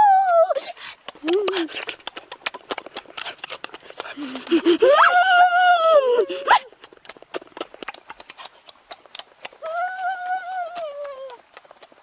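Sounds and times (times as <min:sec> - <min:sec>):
wet mouth smacking: 0:01.0 - 0:04.8, 0:06.8 - 0:09.6
person humming: 0:09.6 - 0:11.4.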